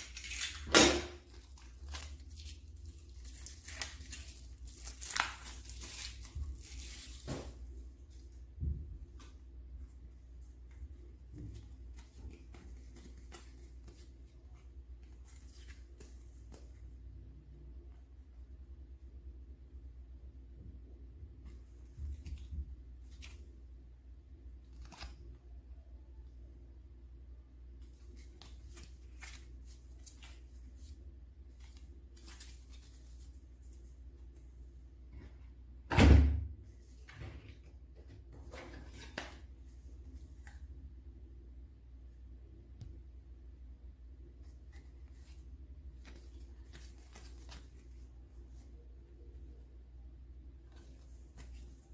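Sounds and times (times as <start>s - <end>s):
cards clicking and rustling: 0.0s - 7.5s, 11.6s - 16.7s, 24.7s - 25.3s, 27.8s - 30.9s, 44.7s - 48.6s
low steady hum: 0.0s - 51.9s
cards shuffled tapping and rustling: 11.3s - 14.2s, 36.9s - 39.5s, 46.0s - 48.0s.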